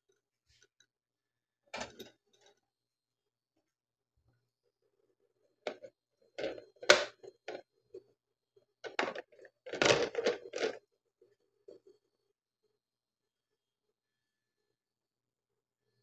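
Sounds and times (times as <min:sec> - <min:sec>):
tableware knocking and clinking: 0:01.8 - 0:02.2, 0:05.7 - 0:07.6.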